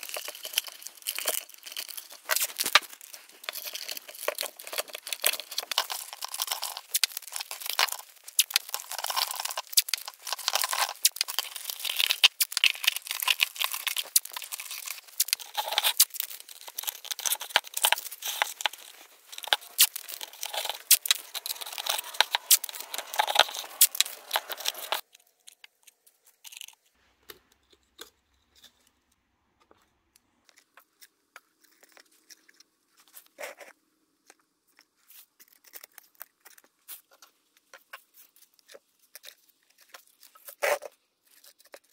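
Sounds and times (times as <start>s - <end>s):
tape peeling and tearing: 9.3s - 25.4s.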